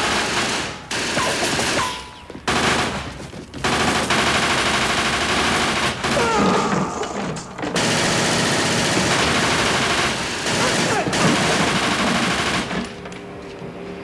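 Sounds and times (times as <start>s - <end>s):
submachine gun fire: 0.0s - 12.9s.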